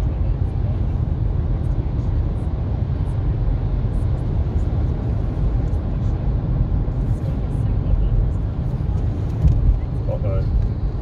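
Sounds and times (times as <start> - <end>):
car road and engine rumble: 0.0 - 11.0.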